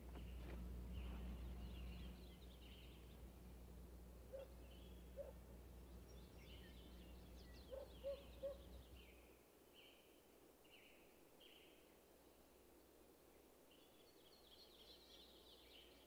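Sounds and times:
low hum: 0:00.0 - 0:09.4
birds twittering: 0:00.0 - 0:10.1.

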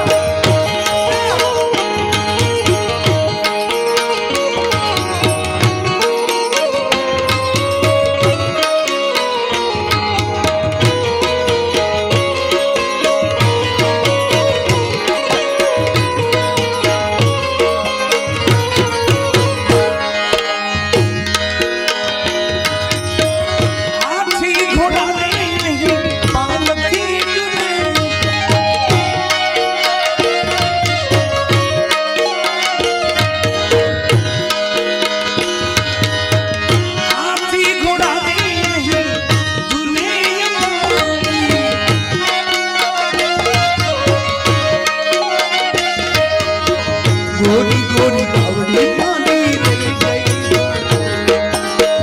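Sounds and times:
hand-drum beats: 0:00.0 - 0:52.0
harmonium chords: 0:00.0 - 0:52.0
tabla rhythm: 0:00.0 - 0:52.0
man singing: 0:01.1 - 0:02.2, 0:24.0 - 0:29.0, 0:37.0 - 0:43.7, 0:47.2 - 0:50.9.

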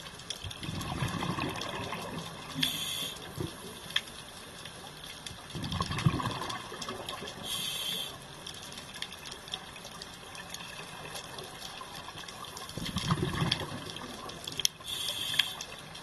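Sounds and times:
underwater crackle of clicks: 0:00.0 - 0:16.0
low bubbling: 0:00.5 - 0:03.5, 0:05.5 - 0:07.6, 0:12.8 - 0:14.5
short hiss: 0:02.6 - 0:03.2, 0:07.4 - 0:08.2, 0:14.9 - 0:15.6.

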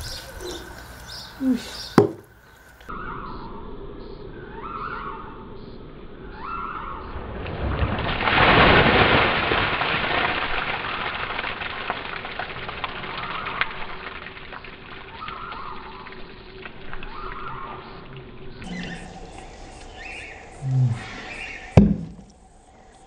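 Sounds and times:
water dripping: 0:00.0 - 0:02.9, 0:09.1 - 0:23.0
heavy water splash: 0:07.4 - 0:16.0
water splattering onto ground: 0:07.4 - 0:18.3.

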